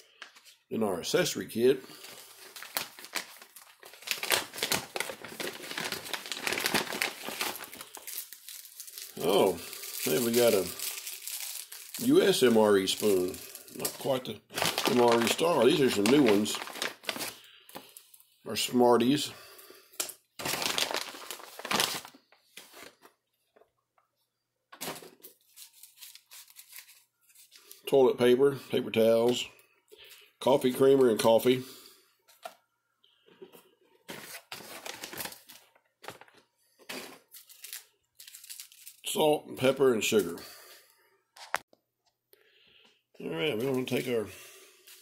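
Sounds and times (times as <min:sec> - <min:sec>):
plastic packaging crinkling: 0:01.9 - 0:18.1, 0:20.4 - 0:23.1, 0:24.8 - 0:27.9, 0:34.1 - 0:39.2.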